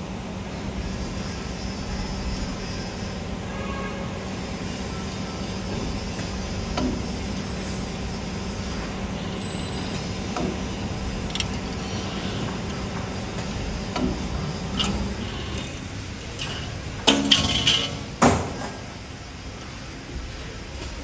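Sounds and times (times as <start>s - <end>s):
machine humming: 7.2s - 18.1s.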